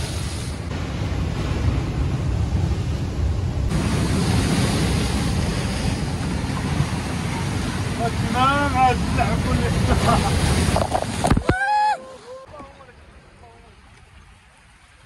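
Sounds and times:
surf breaking over rocks: 0:00.0 - 0:14.2
wind rumbling on microphone: 0:00.0 - 0:15.0.

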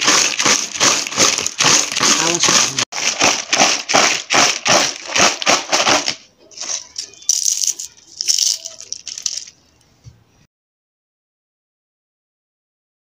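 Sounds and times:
chips rattling in plastic bowl: 0:00.0 - 0:09.6
hand scooping crinkling chips: 0:00.0 - 0:09.6.

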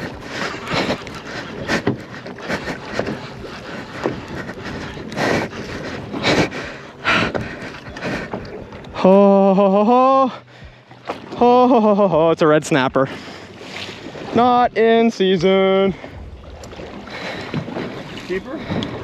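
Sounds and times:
water around a boat: 0:00.0 - 0:19.0
wind buffeting microphone: 0:14.0 - 0:19.0.

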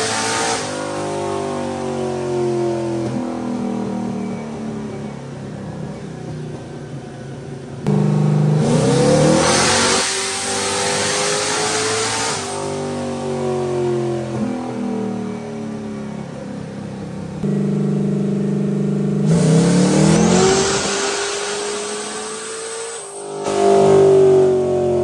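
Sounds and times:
race car engine revving: 0:00.0 - 0:02.3, 0:07.9 - 0:14.5, 0:17.4 - 0:25.0.

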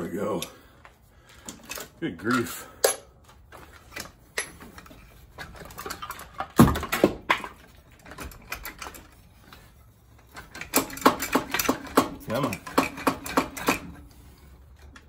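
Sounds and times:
metallic clicks of hand tools: 0:10.4 - 0:14.0.

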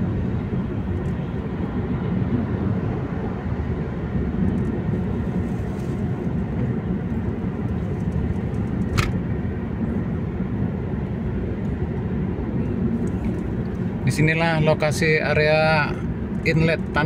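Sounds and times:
car road and engine noise: 0:00.0 - 0:17.0
sharp click: 0:08.8 - 0:09.2.

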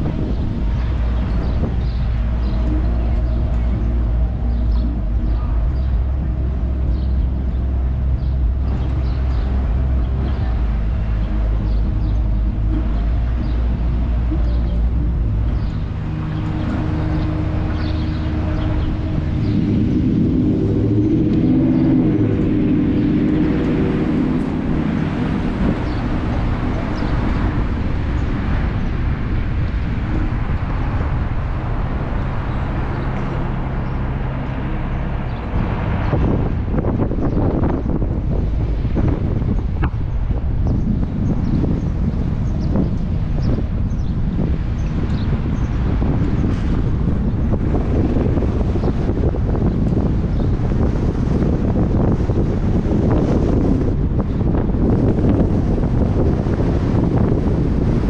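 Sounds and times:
car driving with road noise: 0:00.0 - 0:58.0
car engine rumble: 0:00.0 - 0:58.0.

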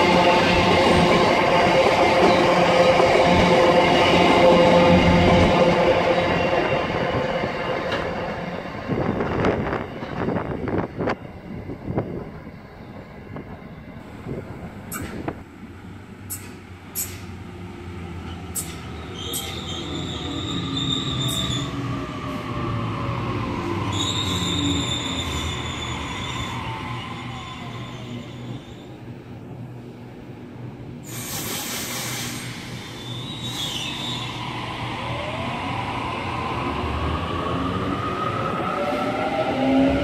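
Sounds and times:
train wheel and rail noise: 0:00.0 - 0:40.0
high-pitched squeals: 0:18.5 - 0:21.9.

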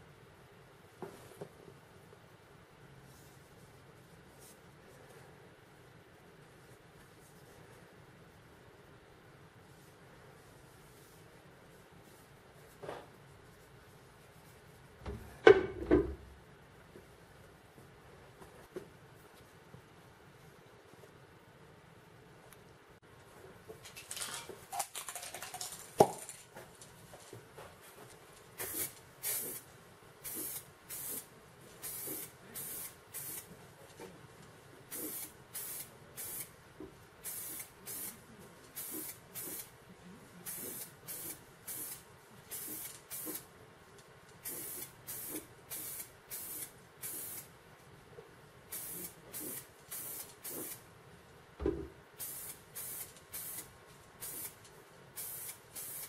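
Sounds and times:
spray can hissing bursts: 0:28.6 - 0:33.5, 0:34.9 - 0:36.6, 0:37.2 - 0:38.2, 0:38.8 - 0:39.7, 0:40.4 - 0:43.5, 0:44.4 - 0:47.5, 0:48.7 - 0:50.8, 0:52.2 - 0:54.6, 0:55.2 - 0:56.0
thud: 0:51.6 - 0:51.9.

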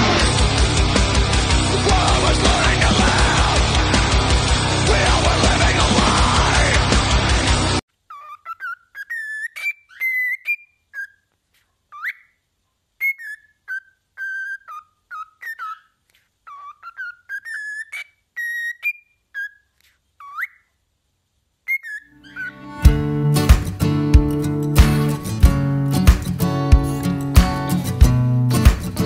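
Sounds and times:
cockatiel whistling: 0:08.2 - 0:11.2, 0:13.0 - 0:15.9, 0:16.5 - 0:20.7, 0:21.7 - 0:22.7.

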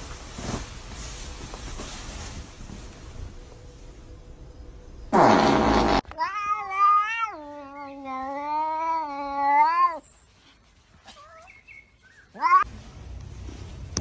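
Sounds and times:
cat yowling: 0:06.1 - 0:10.0, 0:12.3 - 0:12.7.

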